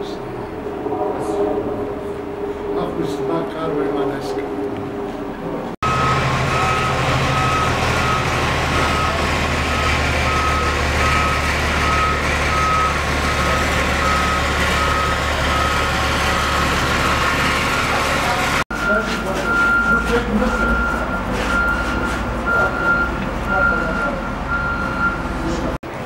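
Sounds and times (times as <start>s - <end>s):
large engine droning: 0.0s - 26.0s
reversing alarm beeping: 5.8s - 25.6s.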